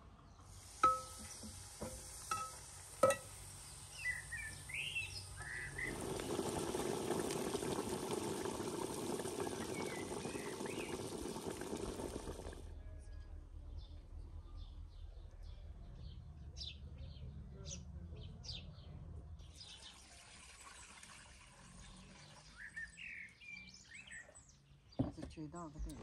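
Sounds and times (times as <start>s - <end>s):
birds chirping faintly: 0.0s - 20.1s
metal skimmer clinking on pot: 0.8s - 3.4s
liquid pouring and bubbling: 5.4s - 12.7s.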